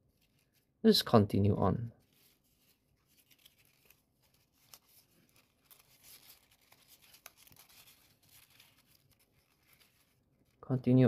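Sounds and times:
paper rustling and crinkling: 0.0s - 0.8s, 2.0s - 10.6s
paper edges clicking: 3.1s - 10.1s.

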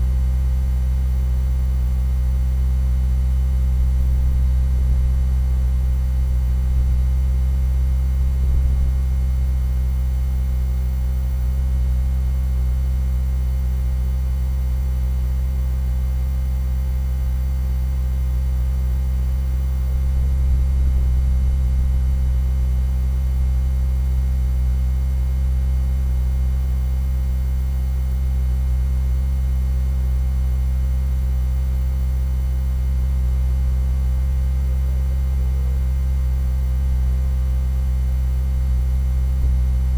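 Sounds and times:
low-pitched hum: 1.3s - 12.6s, 18.2s - 24.4s, 36.6s - 39.9s.

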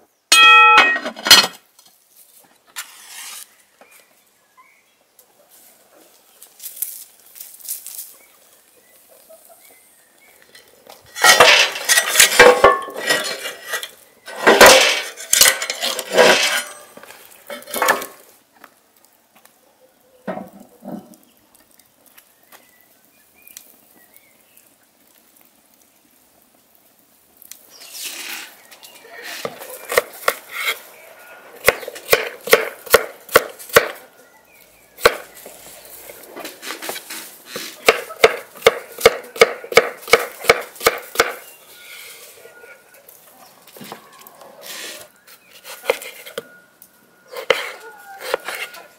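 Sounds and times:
kitchen clattering and knocking: 0.3s - 1.6s, 11.2s - 13.4s, 14.3s - 16.8s
knife chopping on wooden board: 37.8s - 41.4s.

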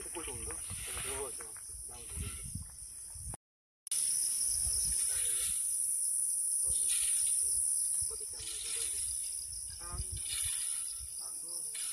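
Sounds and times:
insects shrilling: 3.9s - 11.9s.

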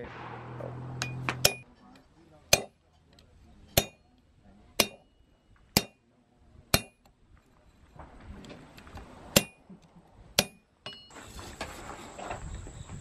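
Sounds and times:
hammer striking iron on anvil: 0.9s - 1.7s, 2.5s - 2.8s, 3.7s - 4.1s, 4.8s - 6.0s, 6.7s - 7.1s, 9.4s - 9.6s, 10.4s - 11.1s.

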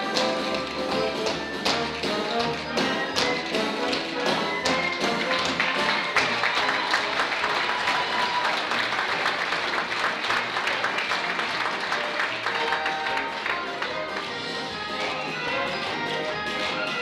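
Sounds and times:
tap dancing steps clicking: 0.0s - 6.8s
show music: 0.0s - 17.0s
audience applause: 0.6s - 14.4s.

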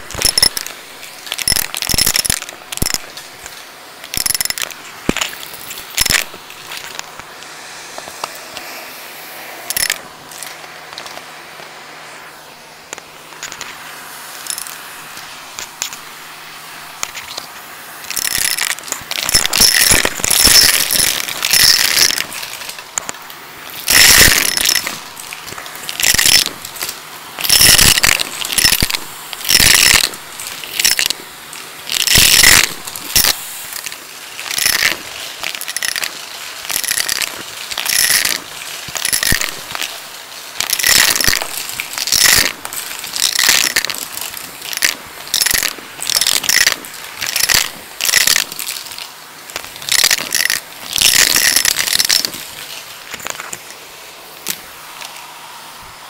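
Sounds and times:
coins rattling through hose: 0.0s - 7.0s, 9.7s - 11.1s, 14.4s - 14.8s, 17.0s - 53.7s
vacuum cleaner running: 7.1s - 18.1s.

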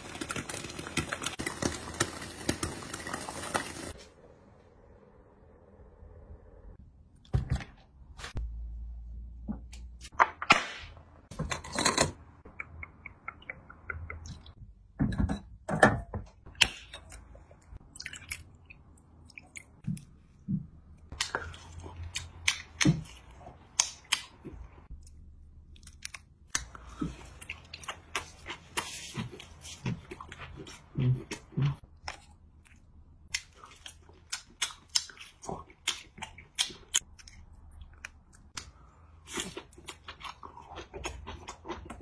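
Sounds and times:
person chewing and biting: 33.4s - 38.6s.

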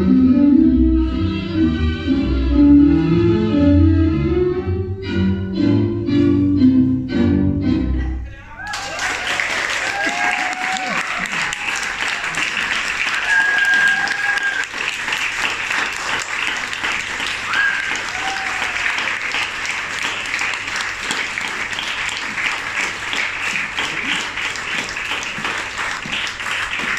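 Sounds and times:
high cheers: 8.5s - 15.0s, 17.3s - 19.4s
audience applauding: 8.6s - 26.9s.

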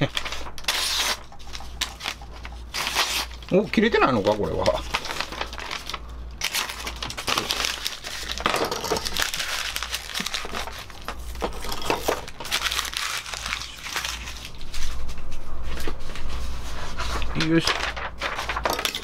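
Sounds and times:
paper strips rustling: 0.0s - 19.0s
knife slicing paper: 0.1s - 2.1s.

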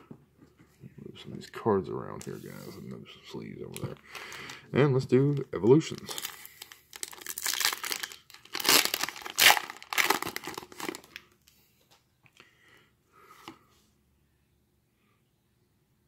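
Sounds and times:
wrapper and cards rustling: 5.2s - 11.2s
foil pack tearing and crinkling: 6.0s - 11.2s.

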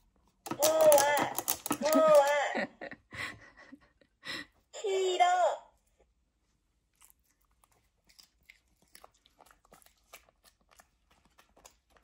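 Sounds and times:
dog chewing crunchy food: 6.9s - 12.0s.

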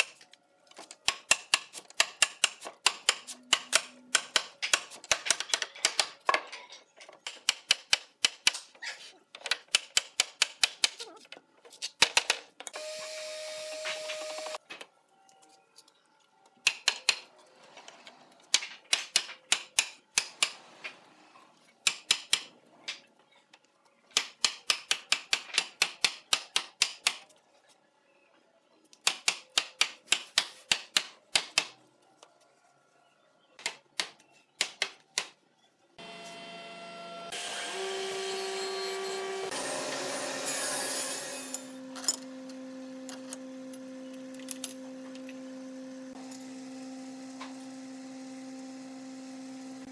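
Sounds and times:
woodworking machine motor humming: 36.0s - 49.9s.

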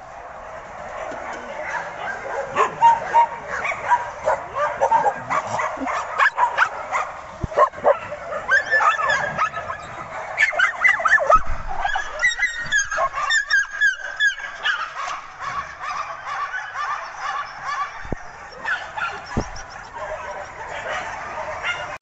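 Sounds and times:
puppies yipping and whining: 7.6s - 22.0s.

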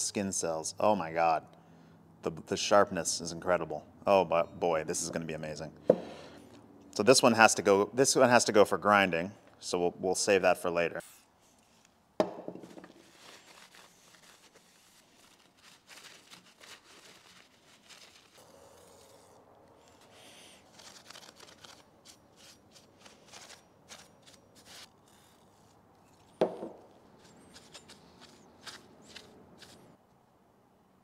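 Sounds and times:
rag wiping steel blade: 16.2s - 26.4s
metal parts clicking and scraping: 18.4s - 29.8s.

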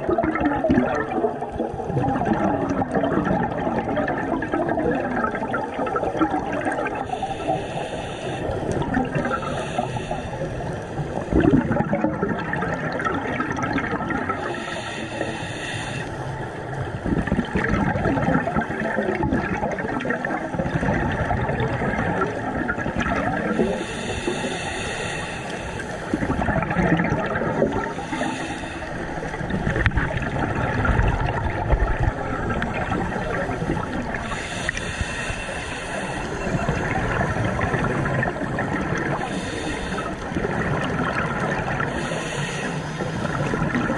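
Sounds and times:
underwater bubbling and gurgling: 0.0s - 43.9s
breath hiss through regulator: 7.0s - 11.6s, 14.4s - 16.3s, 23.5s - 26.2s, 27.8s - 29.4s, 33.1s - 36.9s, 39.0s - 40.4s, 41.8s - 43.5s.

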